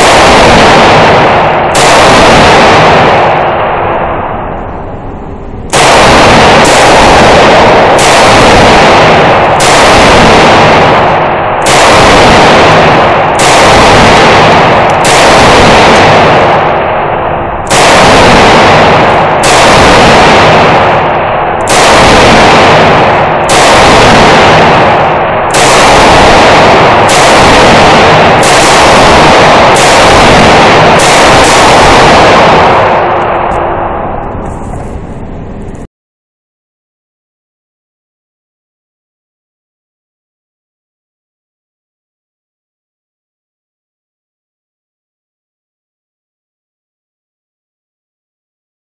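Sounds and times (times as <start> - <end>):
rifle shots echoing indoors: 0.0 - 35.9.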